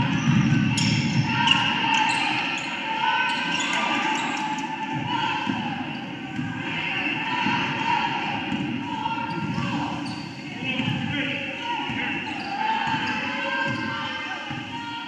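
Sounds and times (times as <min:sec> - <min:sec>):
crowd murmur: 0:00.0 - 0:15.0
basketball bouncing on court: 0:11.8 - 0:13.9.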